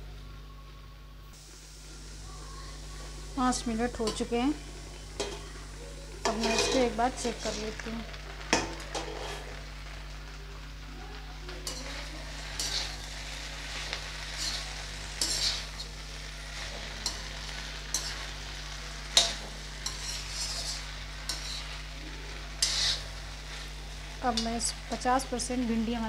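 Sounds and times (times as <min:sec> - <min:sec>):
vegetables sizzling in a pan: 0:00.0 - 0:26.0
metal spatula scraping pan: 0:06.2 - 0:07.8, 0:08.6 - 0:09.6, 0:11.6 - 0:18.4, 0:19.0 - 0:21.8, 0:22.6 - 0:24.5.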